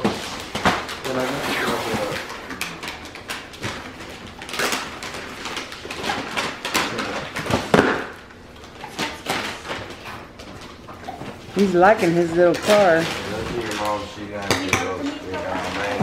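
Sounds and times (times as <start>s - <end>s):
wrapping paper rustling and crinkling: 2.8s - 7.8s, 8.7s - 14.4s, 15.2s - 16.0s.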